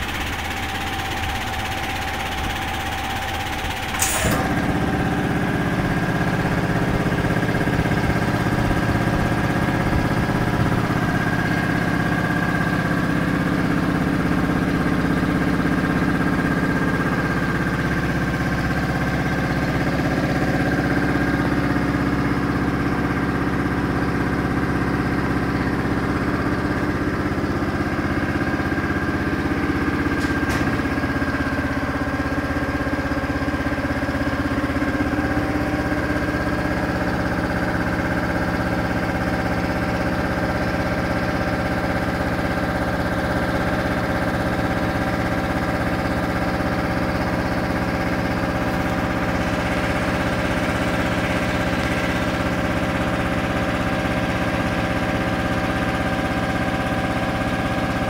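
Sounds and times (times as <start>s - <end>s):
air compressor humming: 0.0s - 58.0s
sharp click: 30.2s - 30.9s.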